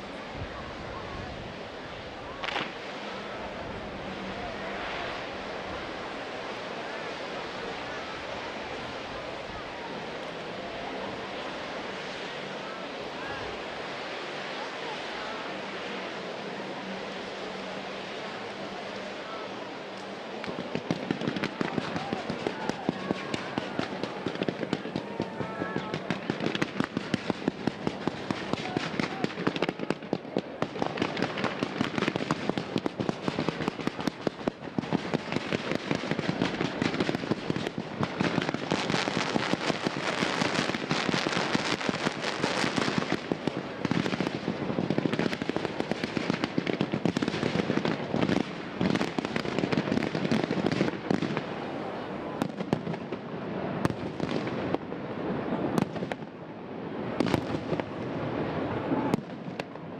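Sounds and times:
fireworks pops bangs and crackling: 2.4s - 2.8s, 20.0s - 51.6s, 52.4s - 54.9s, 55.7s - 56.3s, 57.2s - 58.1s, 59.1s - 59.9s.

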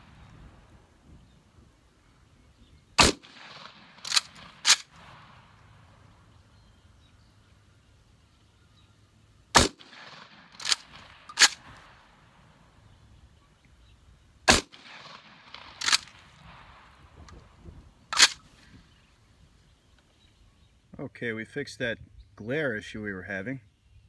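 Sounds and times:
shotgun firing: 3.0s - 5.5s, 9.5s - 12.0s, 14.5s - 17.0s, 18.1s - 18.4s.

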